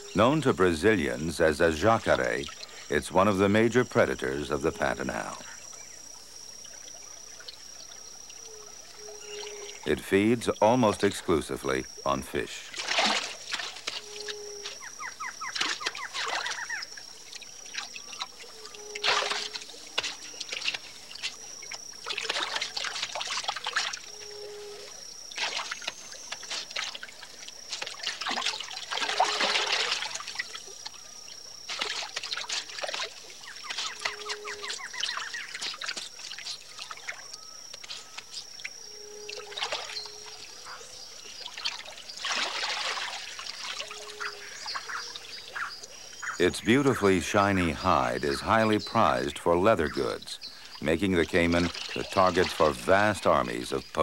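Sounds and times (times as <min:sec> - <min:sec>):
thin high steady tone: 0:00.0 - 0:54.0
water dripping and trickling: 0:12.7 - 0:24.2, 0:25.2 - 0:38.7, 0:41.2 - 0:45.6
caiman splashing in shallow water: 0:12.7 - 0:24.4, 0:25.0 - 0:38.8, 0:39.4 - 0:46.4, 0:51.2 - 0:53.4.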